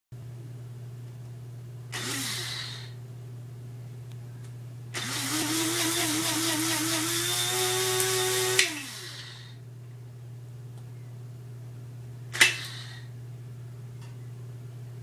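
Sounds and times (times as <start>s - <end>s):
electric coffee grinder whirring: 1.9s - 3.0s, 5.0s - 9.6s.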